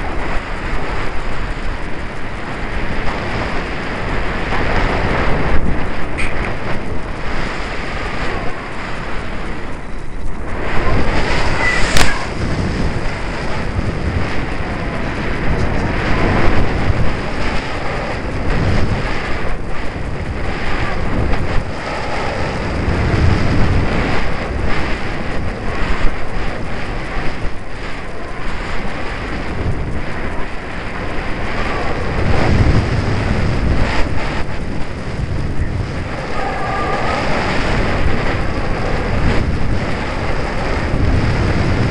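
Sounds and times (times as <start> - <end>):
wind buffeting microphone: 0.0 - 41.9
sharp click: 11.2 - 12.4.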